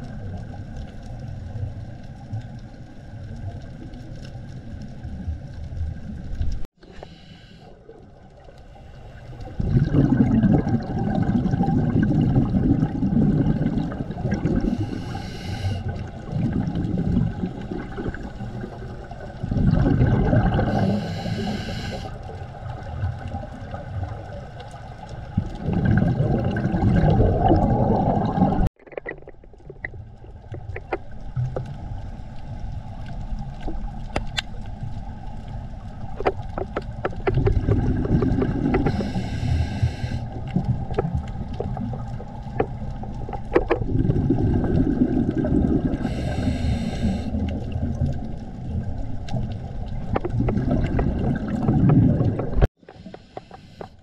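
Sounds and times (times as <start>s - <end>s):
muffled underwater rumble: 0.0s - 54.0s
regulator bubbling: 9.5s - 21.6s, 25.3s - 31.1s, 36.1s - 53.9s.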